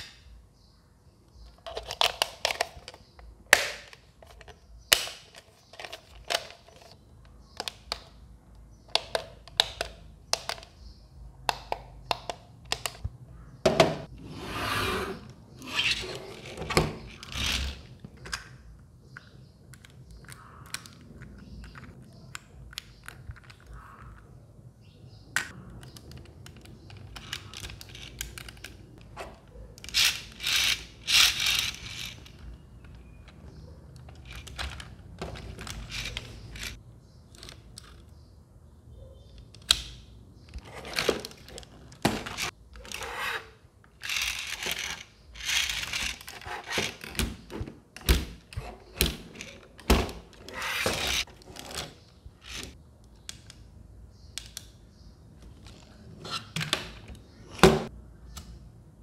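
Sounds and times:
plastic toy parts clicking: 0:01.4 - 0:08.2, 0:08.9 - 0:10.8, 0:25.4 - 0:29.2, 0:29.8 - 0:38.1, 0:43.9 - 0:47.2, 0:48.0 - 0:51.8, 0:52.4 - 0:53.7.

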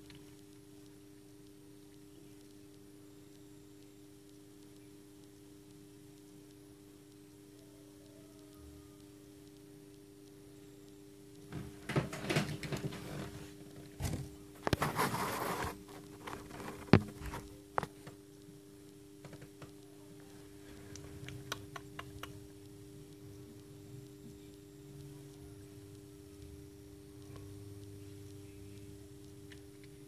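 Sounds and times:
steady low hum: 0:00.0 - 0:30.0
chick scratching inside eggshell: 0:14.7 - 0:17.5.

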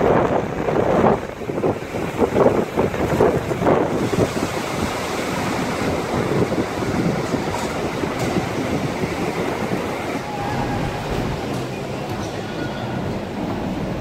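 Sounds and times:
steady rushing noise: 0:00.0 - 0:14.0.

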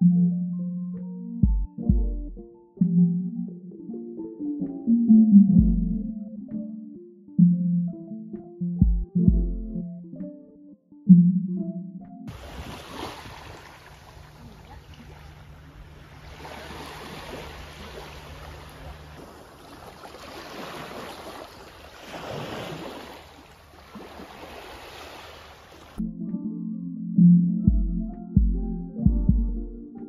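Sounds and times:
small waves lapping on sand: 0:12.3 - 0:26.0.

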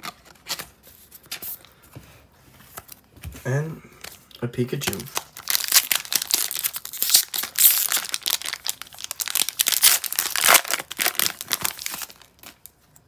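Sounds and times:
foil wrapper crinkling: 0:04.9 - 0:12.8.

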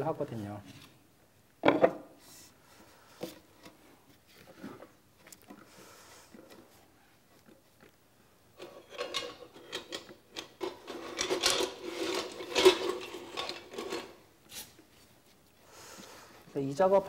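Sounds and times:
hand tools scraping bamboo: 0:10.6 - 0:14.8.

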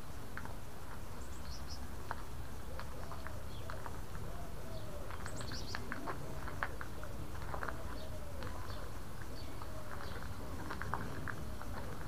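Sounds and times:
lower bird calls: 0:02.6 - 0:12.0.

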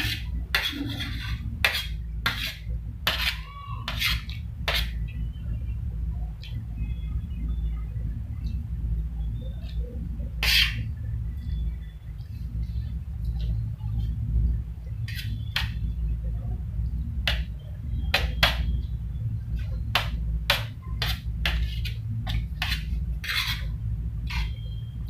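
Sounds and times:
spoon scraping a metal plate: 0:00.0 - 0:05.0, 0:10.4 - 0:10.9, 0:15.1 - 0:15.8, 0:20.0 - 0:24.7
steady low hum: 0:00.0 - 0:25.0.

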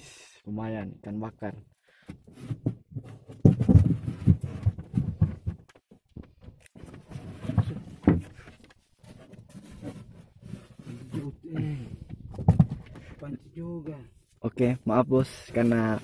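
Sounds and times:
knocks and bumps on wooden boat: 0:02.1 - 0:08.6, 0:11.6 - 0:13.1.

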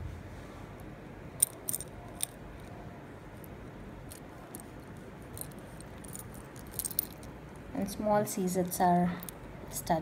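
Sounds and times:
necklace beads clicking together: 0:01.4 - 0:02.4, 0:05.3 - 0:07.3.

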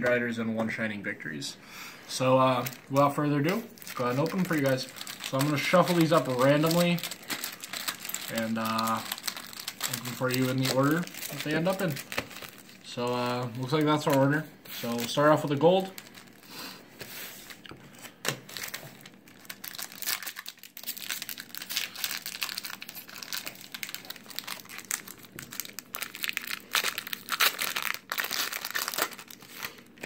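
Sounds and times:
foil wrapper tearing and crinkling: 0:02.6 - 0:16.5, 0:17.4 - 0:30.0.

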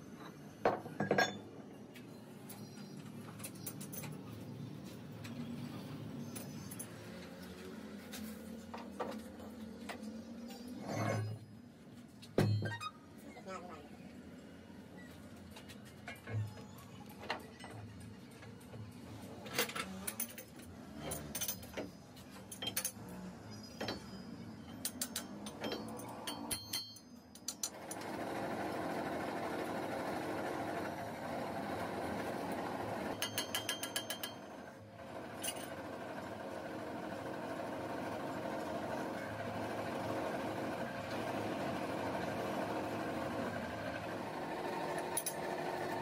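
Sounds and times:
lathe running hum: 0:27.8 - 0:33.1, 0:34.4 - 0:46.0.

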